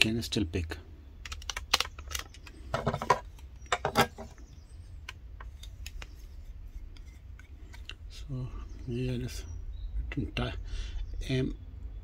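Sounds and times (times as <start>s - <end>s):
batteries clicking into radio: 1.2s - 3.8s, 5.0s - 6.2s.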